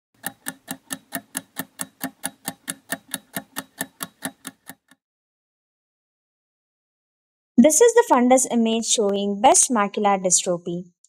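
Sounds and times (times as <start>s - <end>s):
stopwatch ticking: 0.2s - 5.0s.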